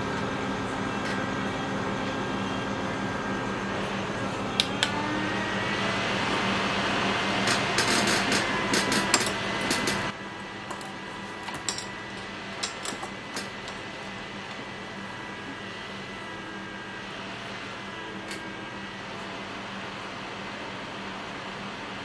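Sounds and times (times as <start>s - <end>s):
hot air rework station blowing: 2.9s - 11.3s.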